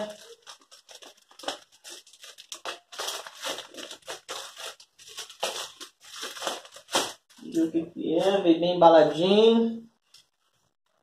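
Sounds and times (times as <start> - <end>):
plastic bag crinkling and tearing: 0.0 - 7.7.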